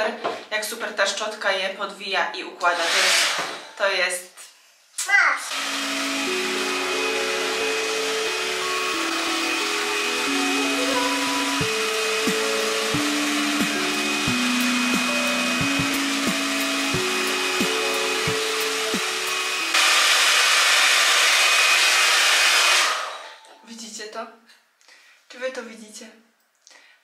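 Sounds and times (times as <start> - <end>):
hot air brush blowing: 2.7 - 3.8, 5.5 - 23.4
plucked background music: 5.6 - 19.8.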